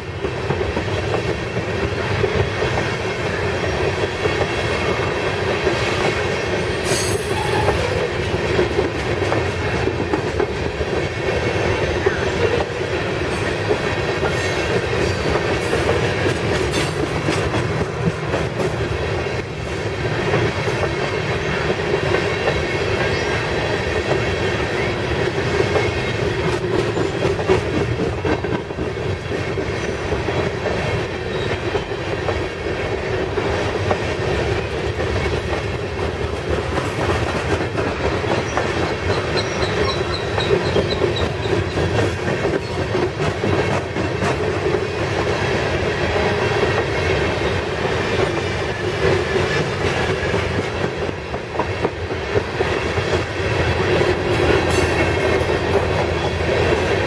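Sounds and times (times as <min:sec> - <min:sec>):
train wheels rumbling and clattering: 0:00.0 - 0:57.0
high-pitched wheel squeal: 0:06.9 - 0:08.0.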